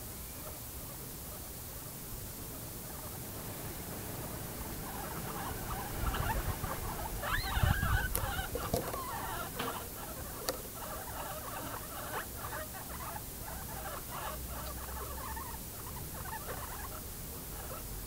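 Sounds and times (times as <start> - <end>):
guinea pig squeaks: 4.8 - 17.8
guinea pigs munching vegetables: 4.8 - 17.8.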